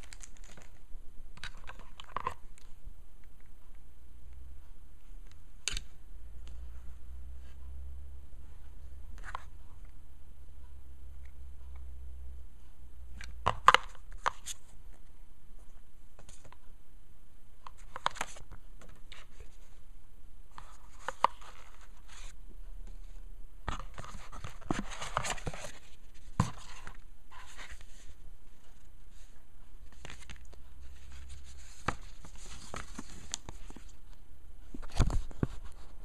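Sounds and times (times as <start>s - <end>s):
paper rustling: 0.0s - 2.7s, 20.5s - 36.0s.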